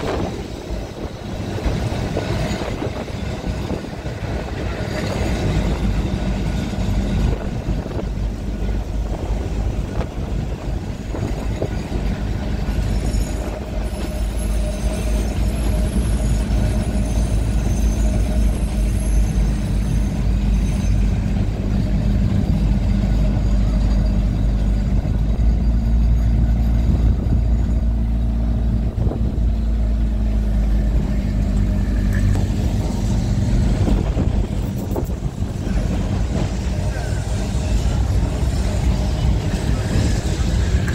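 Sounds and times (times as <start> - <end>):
electric tram rumble and hum: 0.0 - 40.9
wind on microphone: 32.3 - 36.9.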